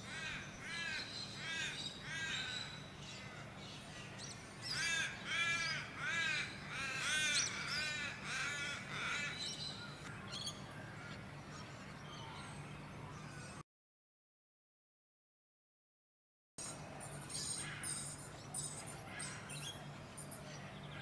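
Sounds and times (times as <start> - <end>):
bird calling: 0.0 - 13.6.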